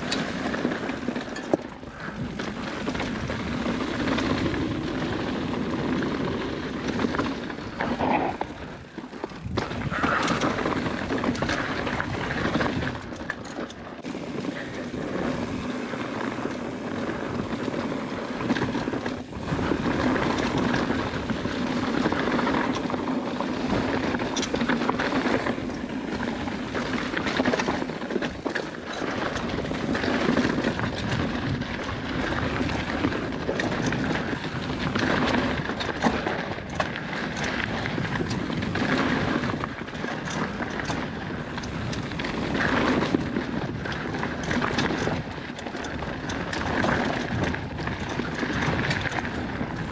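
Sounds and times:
bike rattling and knocking: 0.0 - 49.9
wind on microphone: 7.5 - 13.2, 14.0 - 28.1, 29.4 - 49.9.

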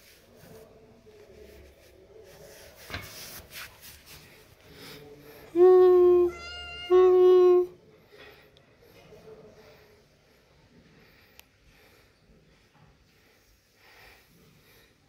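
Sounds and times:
cat meowing: 5.9 - 7.7.

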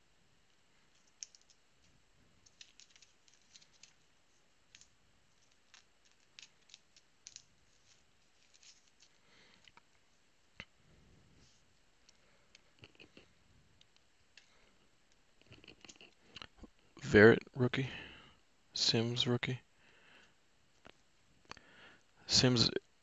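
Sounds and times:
trading cards clicking and scraping: 2.4 - 9.9.

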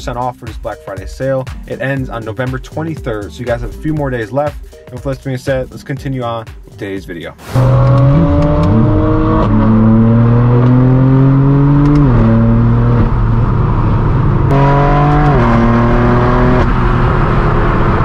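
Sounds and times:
car exhaust accelerating through gears: 7.5 - 18.0.

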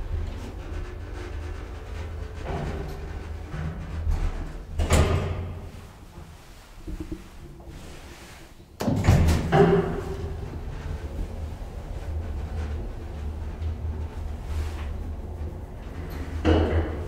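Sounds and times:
elevator low hum: 0.0 - 17.0
loud clunking clatter: 8.8 - 12.7, 15.9 - 17.0.

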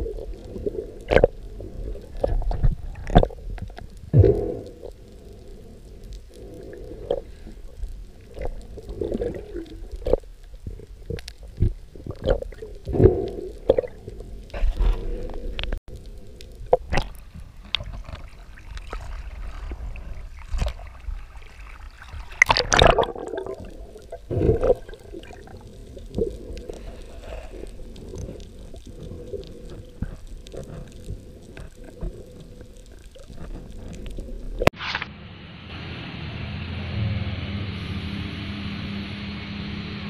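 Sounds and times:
underwater low rumble: 0.0 - 40.0
underwater clicks and knocks: 2.1 - 4.4.

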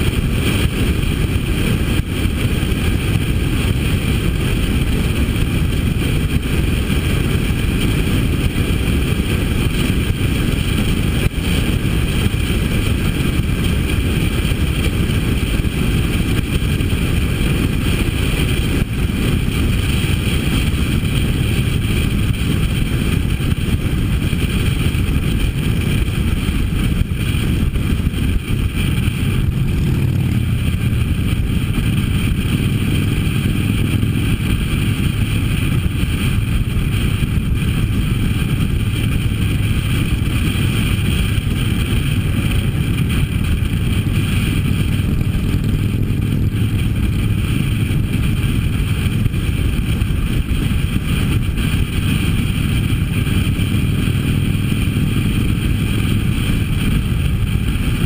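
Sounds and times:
motorcycle engine cruising: 0.0 - 58.0
wind rushing on microphone: 0.0 - 58.0.

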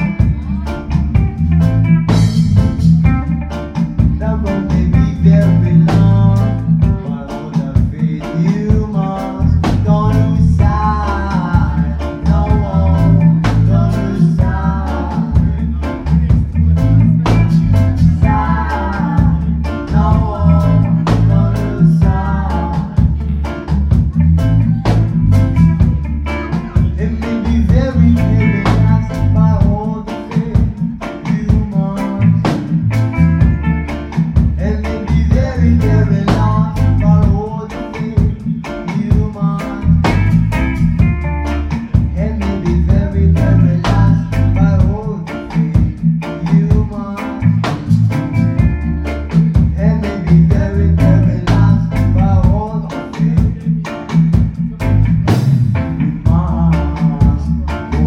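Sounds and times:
live reggae band: 0.0 - 58.0
person singing: 0.0 - 58.0.

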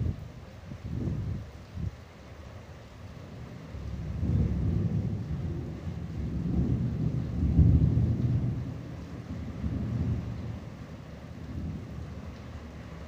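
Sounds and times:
rain falling: 0.0 - 13.0
thunder rumbling: 3.4 - 13.0.

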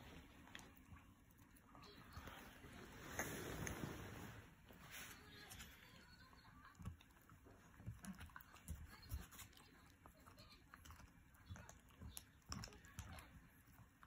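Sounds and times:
dog gnawing on chew: 6.7 - 14.0.

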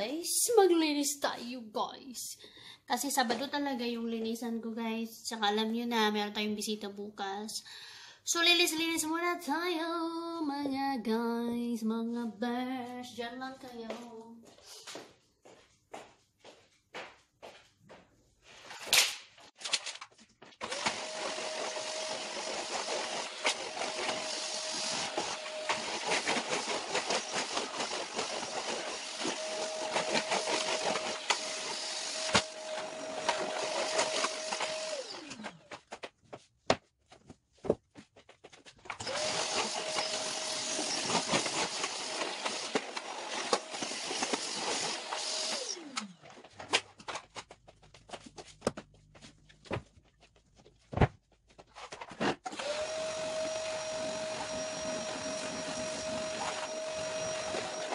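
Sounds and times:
vacuum cleaner running: 20.6 - 35.8, 39.0 - 46.5, 52.5 - 57.9.

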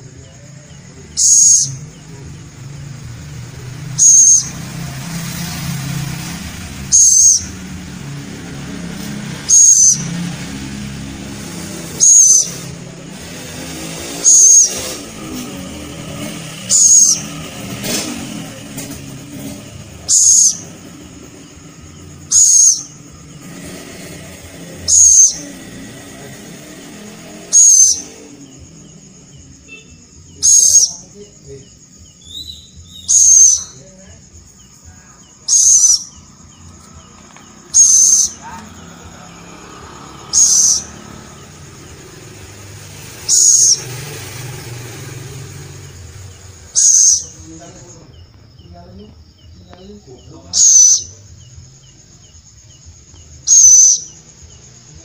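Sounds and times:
owl rasping calls: 0.0 - 48.7, 49.3 - 54.9.

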